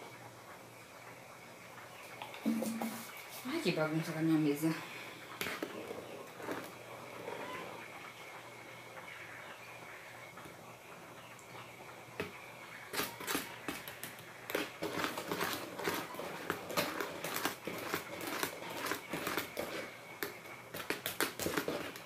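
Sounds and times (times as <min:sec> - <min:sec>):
utensil beating batter in bowl: 0:02.1 - 0:09.0, 0:11.4 - 0:22.0.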